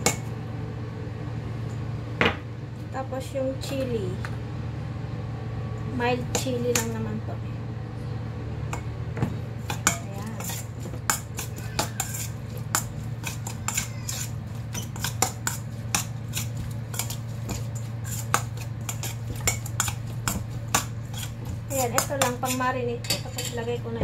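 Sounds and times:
metal spoon scraping a bowl: 9.6s - 23.7s.

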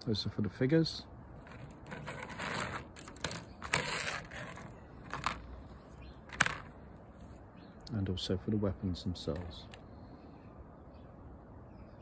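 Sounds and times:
plastic sprues rustling: 1.4s - 5.4s.

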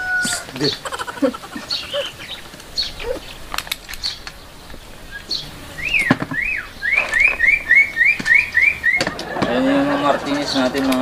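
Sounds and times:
myna whistling: 0.0s - 4.3s, 5.0s - 9.3s
sharp clicks: 2.4s - 9.5s
fast repeated whistled notes: 5.1s - 9.2s.

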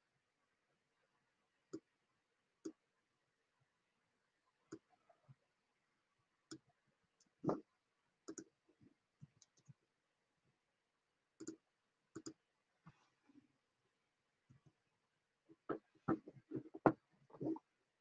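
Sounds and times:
faint clicks and taps: 6.5s - 9.8s, 11.4s - 11.6s, 12.2s - 13.1s, 14.5s - 14.8s, 15.5s - 17.6s.

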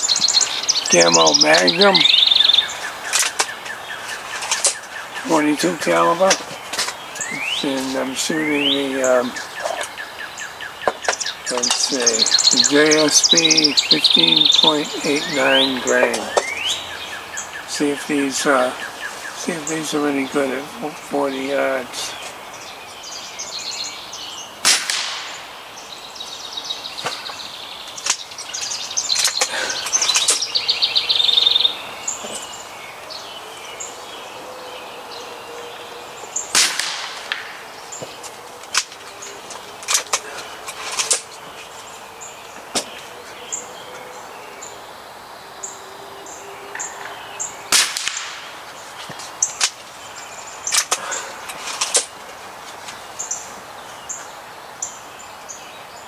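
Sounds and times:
birds chirping: 0.0s - 56.0s
air rifle shots cracking: 24.6s - 25.6s, 36.5s - 37.7s, 47.7s - 48.6s.

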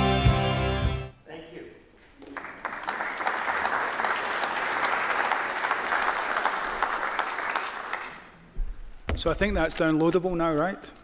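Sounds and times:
audience applauding: 2.2s - 8.4s.

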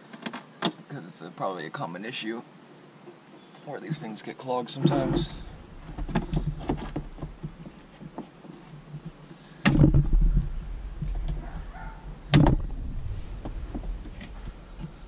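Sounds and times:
low rumble: 4.8s - 7.5s, 9.9s - 15.0s.

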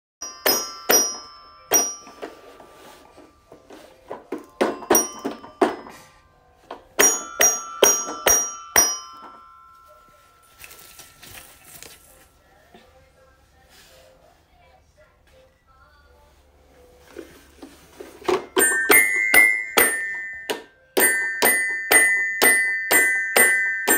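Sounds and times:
toy xylophone notes ringing: 0.2s - 6.2s, 7.0s - 11.4s, 18.3s - 23.9s.

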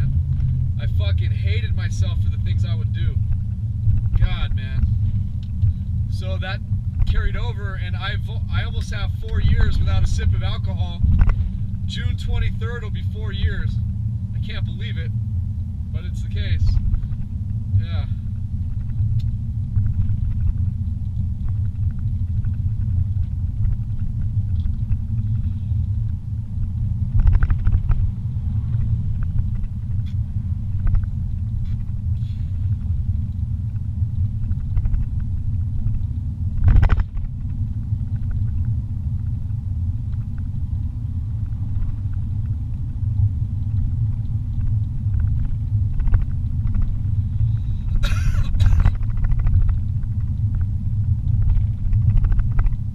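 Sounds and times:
car engine and tyres rumbling: 0.0s - 52.9s.

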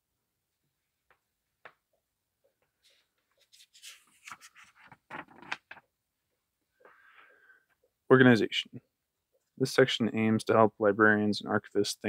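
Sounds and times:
paper pages rustling: 2.8s - 5.8s.

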